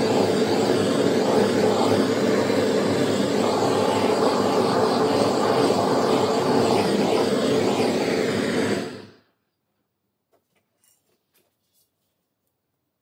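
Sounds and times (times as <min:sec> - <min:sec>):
gas torch rushing: 0:00.0 - 0:09.4.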